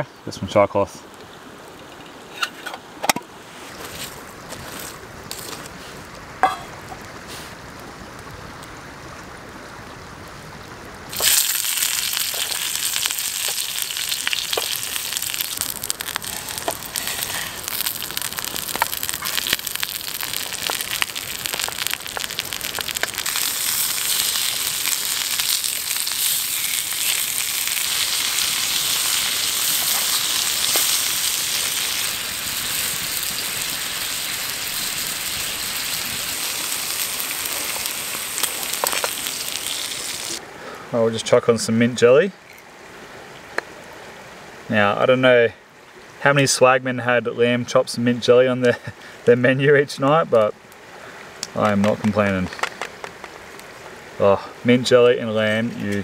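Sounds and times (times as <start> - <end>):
food sizzling in a pan: 11.1 - 40.4.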